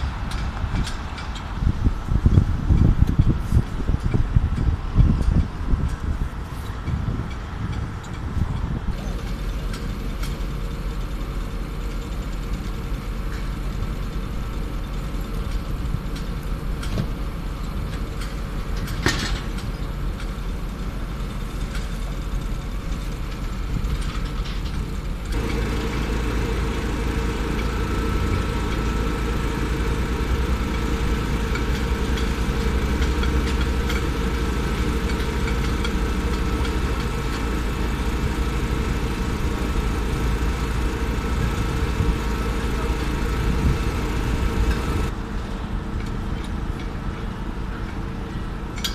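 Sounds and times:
construction machinery engines: 0.0s - 48.9s
higher hum: 25.4s - 45.1s.

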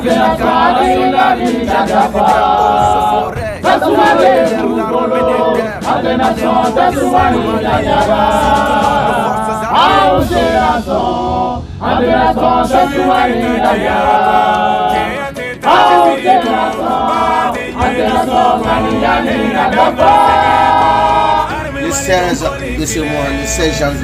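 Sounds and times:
group singing unaccompanied: 0.0s - 24.0s.

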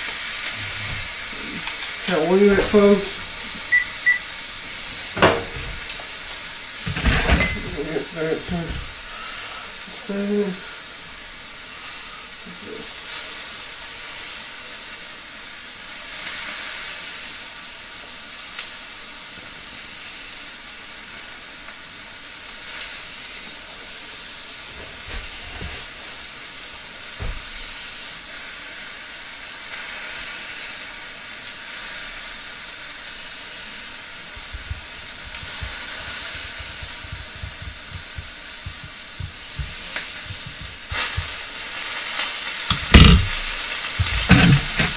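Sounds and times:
meat sizzling in a pan: 0.0s - 44.9s
low bumps: 34.3s - 41.4s, 42.7s - 44.9s
soft low thumps: 34.4s - 41.4s, 42.7s - 44.9s.

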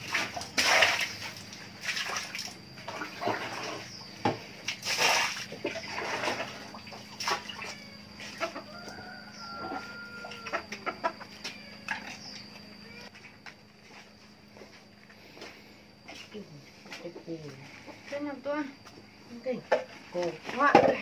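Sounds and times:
chickens clucking: 5.6s - 13.1s.

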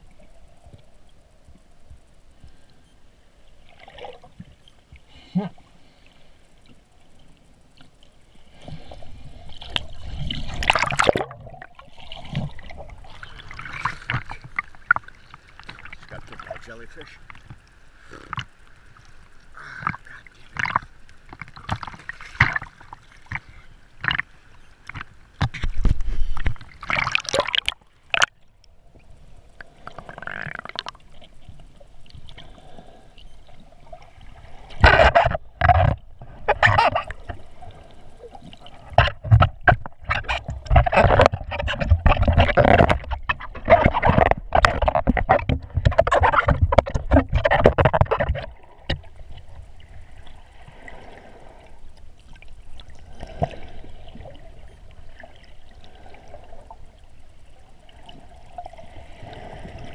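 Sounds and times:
water sloshing and gurgling: 0.0s - 59.9s
knocks and splashes: 10.3s - 12.8s, 19.8s - 24.2s, 24.9s - 28.3s, 38.8s - 49.1s.

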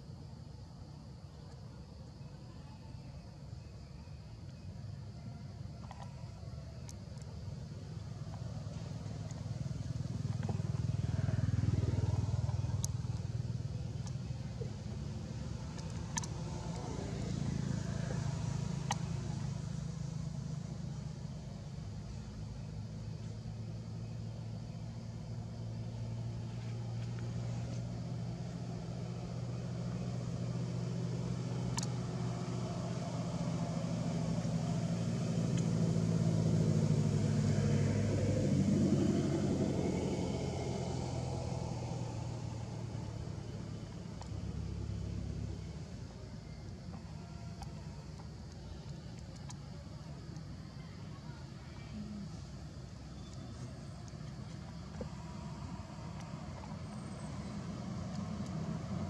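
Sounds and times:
vehicle engines rumbling: 4.8s - 59.0s
faint sharp clicks: 6.8s - 7.3s, 12.4s - 13.4s, 14.0s - 17.0s, 18.8s - 19.2s, 31.6s - 32.1s, 44.1s - 44.4s, 46.6s - 50.5s, 53.2s - 56.8s.

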